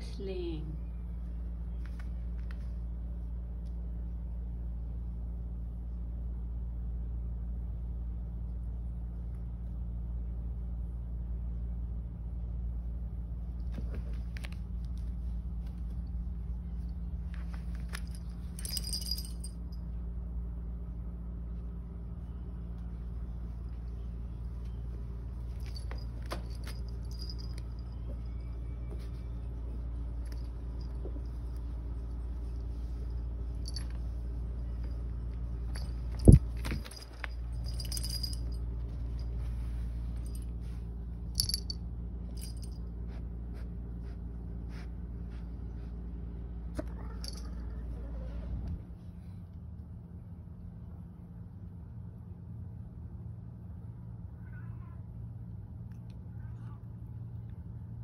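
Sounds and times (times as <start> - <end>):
steady low hum: 0.0 - 58.0
cats rustling and paws scuffing: 13.5 - 19.4, 22.5 - 41.6
bright rattle: 17.9 - 19.6, 25.6 - 27.9, 35.6 - 38.6, 41.3 - 41.8.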